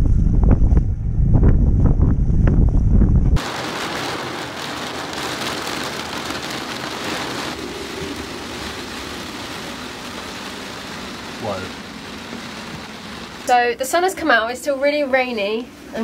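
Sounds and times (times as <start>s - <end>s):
wind buffeting microphone: 0.0s - 3.5s
rain on a cabin roof: 3.4s - 14.6s.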